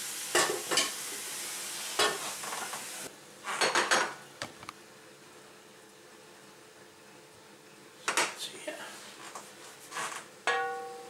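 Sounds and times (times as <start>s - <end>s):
meat sizzling in a pan: 0.0s - 3.1s
spatula scraping and stirring: 9.2s - 10.2s.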